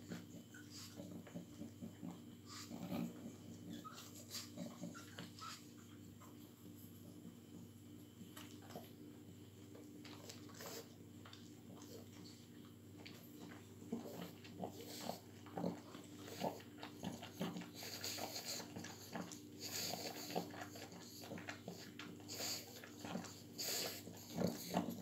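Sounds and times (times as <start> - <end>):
puppy noises: 0.0 - 25.0.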